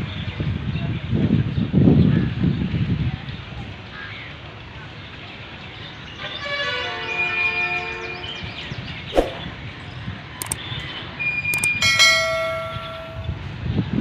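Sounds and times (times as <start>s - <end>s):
sharp clicks: 10.4s - 10.6s, 11.6s - 12.0s
notification bell chime: 11.6s - 13.4s.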